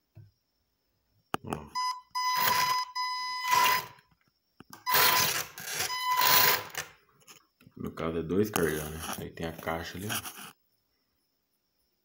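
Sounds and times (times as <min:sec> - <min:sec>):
toy truck electric motor whirring: 0:02.2 - 0:04.0, 0:04.8 - 0:06.9.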